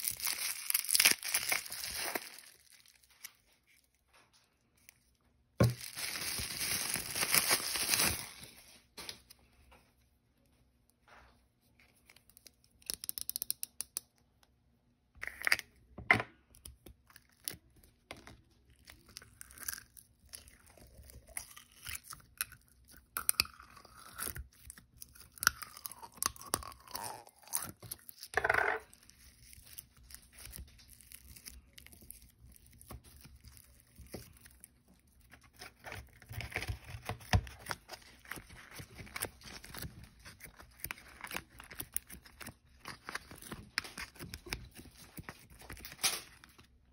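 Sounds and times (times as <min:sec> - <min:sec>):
slime crackling and crunching: 0:00.0 - 0:03.5, 0:05.6 - 0:08.7, 0:17.0 - 0:46.8.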